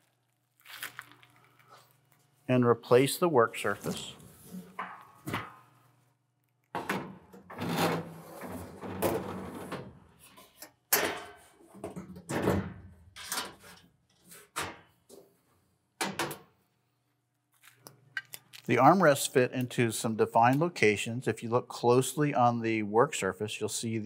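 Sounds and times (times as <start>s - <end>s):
metal panels scraping and knocking: 6.8s - 10.5s.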